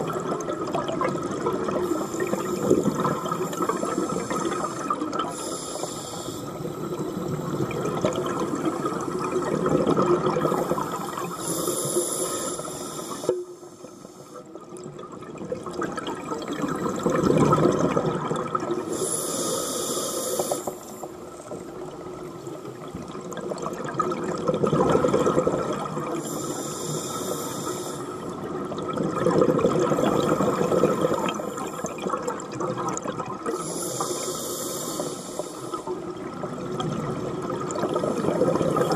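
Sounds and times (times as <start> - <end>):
exhaled bubbles rushing: 0.0 - 5.4, 6.7 - 11.3, 14.8 - 18.9, 23.0 - 26.3, 28.2 - 33.6, 36.1 - 38.9
regulator inhale hiss: 1.8 - 7.8, 10.5 - 14.5, 18.9 - 21.2, 26.2 - 28.3, 33.5 - 35.9.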